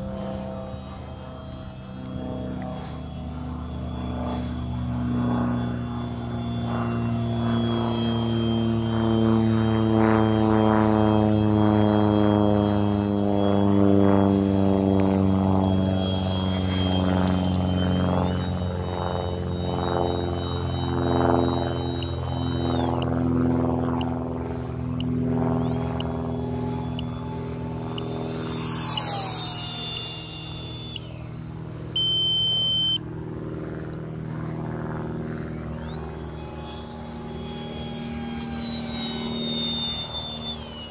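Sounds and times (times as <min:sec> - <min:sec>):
model jet droning with high whine: 0:00.0 - 0:40.9
steady low hum: 0:00.0 - 0:40.9
loud electronic beep: 0:00.9 - 0:14.4, 0:25.6 - 0:31.4, 0:32.0 - 0:33.0, 0:35.8 - 0:40.9.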